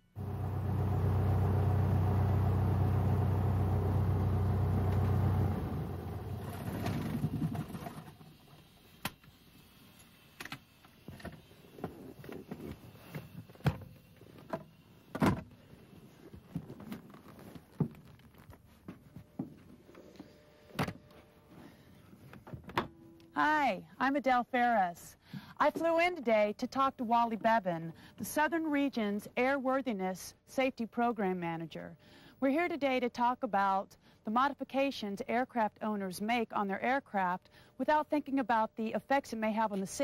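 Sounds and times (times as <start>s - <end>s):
piston aircraft engine idling: 0.2s - 7.2s.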